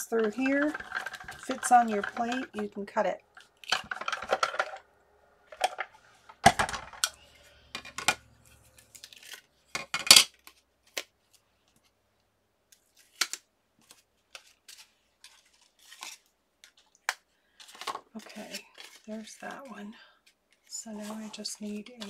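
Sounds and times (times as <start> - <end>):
plastic plates clacking: 0.0 - 4.9, 5.5 - 8.7.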